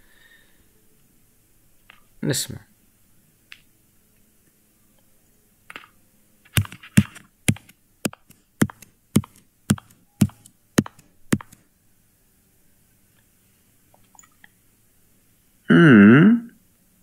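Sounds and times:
footsteps: 0:06.5 - 0:11.6.

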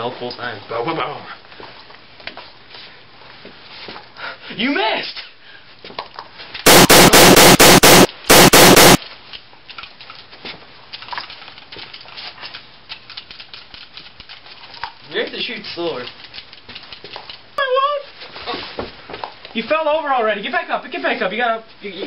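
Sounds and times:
pistol gunshots: 0:06.7 - 0:09.0.

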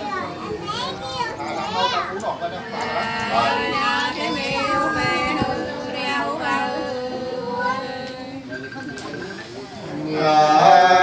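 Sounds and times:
women singing unaccompanied: 0:02.6 - 0:08.5.

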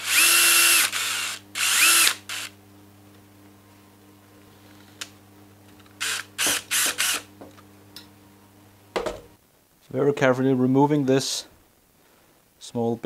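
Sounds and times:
cordless drill spurts: 0:00.0 - 0:02.5, 0:06.0 - 0:07.3.

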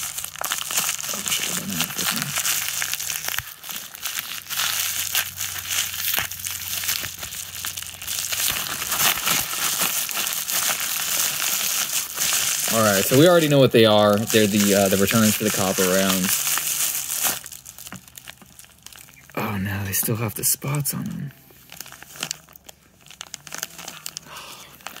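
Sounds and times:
plastic packaging crinkling: 0:00.0 - 0:19.4, 0:21.5 - 0:25.0.

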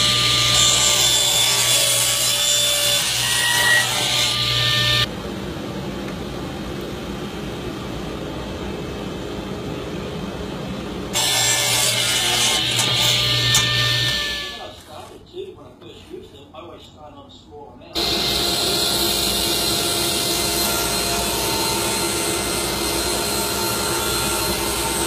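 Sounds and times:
power tool cutting wood: 0:00.0 - 0:05.1, 0:11.1 - 0:15.0, 0:18.0 - 0:25.0.

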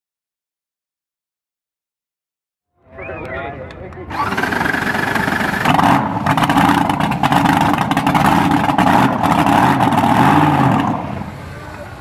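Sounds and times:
dragster engine crackling idle: 0:04.1 - 0:12.0.

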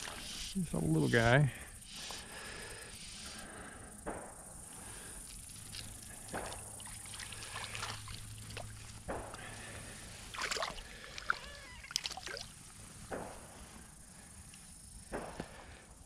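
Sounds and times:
fish splashing in water: 0:05.6 - 0:08.9, 0:10.3 - 0:12.5.

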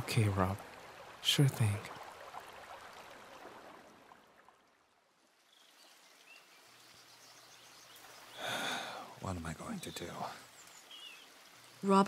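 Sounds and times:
faint outdoor ambience: 0:00.0 - 0:12.0
bath water trickling: 0:00.4 - 0:12.0
soft bird chirp: 0:05.4 - 0:11.8.

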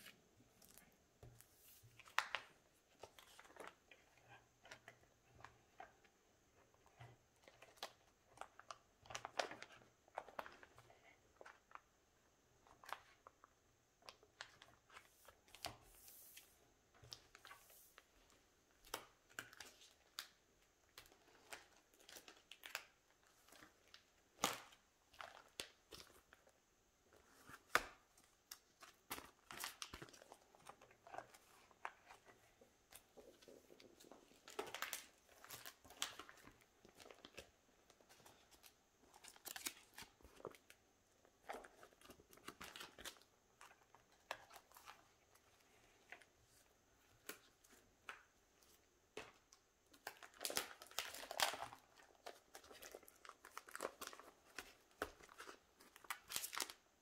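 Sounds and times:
plastic sleeves crinkling: 0:27.2 - 0:57.0.

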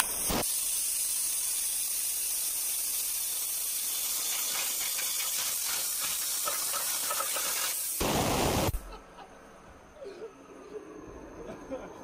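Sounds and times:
waterjet stream hissing: 0:00.0 - 0:08.8.

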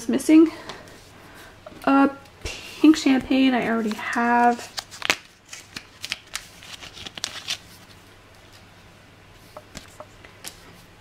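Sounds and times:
plastic sleeve crinkling: 0:03.6 - 0:08.7.

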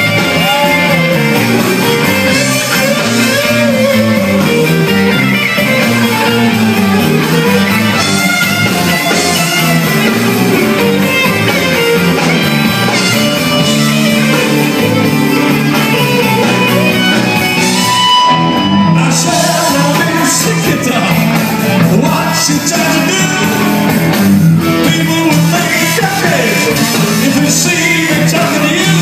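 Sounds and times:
man singing: 0:00.0 - 0:04.5, 0:18.8 - 0:29.0
drums: 0:00.0 - 0:29.0
electric guitars: 0:00.0 - 0:29.0.

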